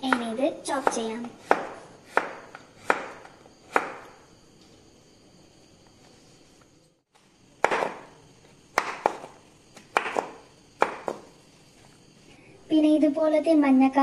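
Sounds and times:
knife chopping on cutting board: 0.0 - 4.1, 7.6 - 11.3.

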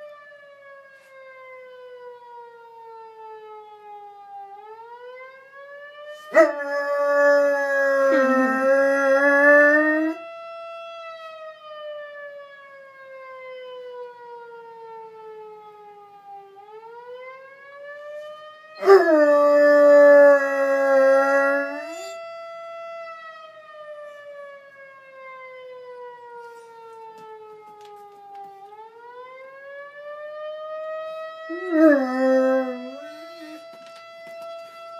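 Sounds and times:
fire siren wailing: 0.0 - 34.9
puppy howling: 6.3 - 10.2, 18.8 - 22.1, 31.5 - 33.6.

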